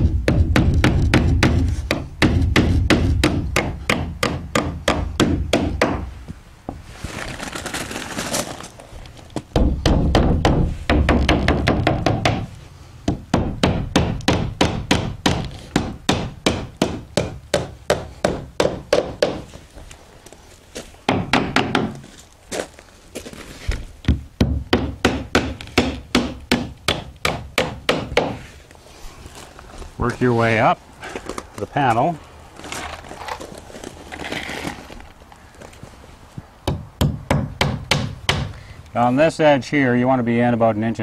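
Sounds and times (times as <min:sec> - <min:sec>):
hammer driving nails into wood: 0:00.0 - 0:06.1, 0:09.5 - 0:12.5, 0:13.1 - 0:19.4, 0:24.1 - 0:28.4, 0:36.7 - 0:38.6
scraping rustle: 0:06.7 - 0:09.5, 0:22.0 - 0:24.0, 0:28.4 - 0:36.4.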